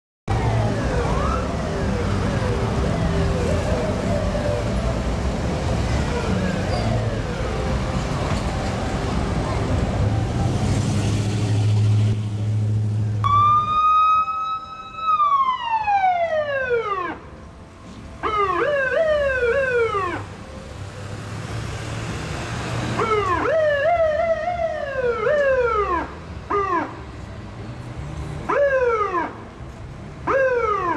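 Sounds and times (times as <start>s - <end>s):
fire engine siren wailing: 0.3s - 11.7s, 13.2s - 17.3s, 18.2s - 21.4s, 22.8s - 27.0s, 28.5s - 29.4s, 30.2s - 30.9s
heavy truck engine: 0.3s - 13.7s, 17.2s - 18.2s, 18.9s - 25.0s, 26.1s - 28.5s.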